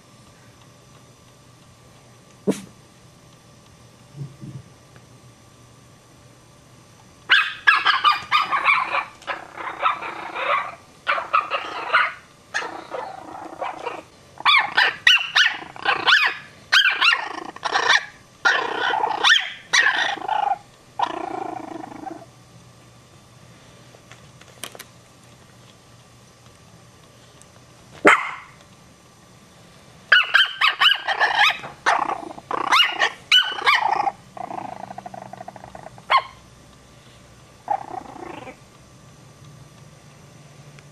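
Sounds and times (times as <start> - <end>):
small dog barking: 7.3 - 20.2, 28.0 - 28.6, 30.1 - 34.0, 36.1 - 36.4.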